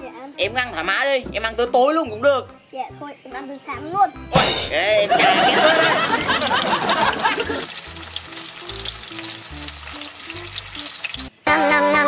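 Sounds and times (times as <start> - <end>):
soft background music: 0.0 - 12.0
sausages sizzling in hot oil: 6.0 - 11.3.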